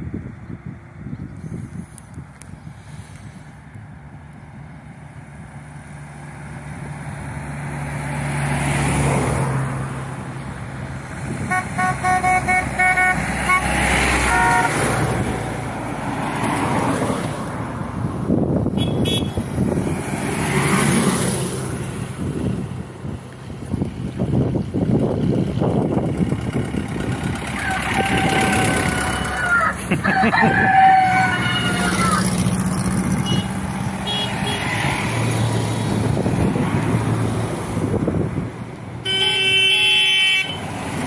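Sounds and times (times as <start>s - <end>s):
vintage car engines passing: 0.0s - 41.0s
car horn beeping: 11.4s - 15.0s, 18.8s - 19.4s, 33.2s - 34.7s, 39.0s - 40.7s.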